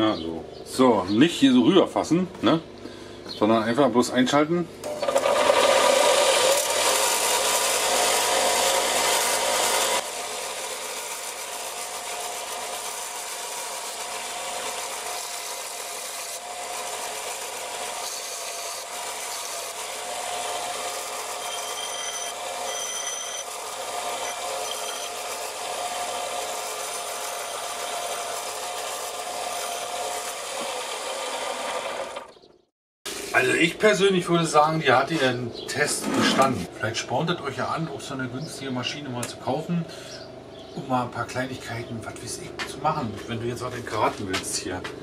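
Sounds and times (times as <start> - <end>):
bench grinder whining: 4.8 - 33.5, 35.2 - 36.8
steel bar grinding: 4.9 - 32.4, 35.8 - 36.7
short high squeaks: 21.3 - 23.6, 24.2 - 25.4.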